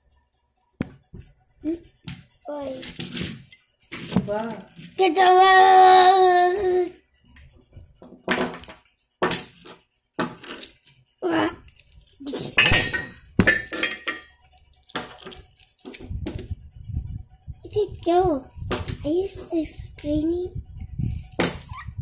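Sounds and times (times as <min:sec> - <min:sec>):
plastic toy cars clattering: 0:08.1 - 0:10.9, 0:11.7 - 0:16.5.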